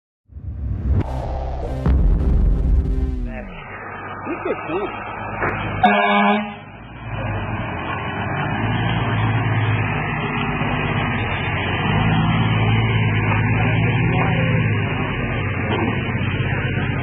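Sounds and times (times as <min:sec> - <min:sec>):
fire engine diesel engine running: 0:01.1 - 0:17.0
short loud horn blast: 0:05.8 - 0:06.7.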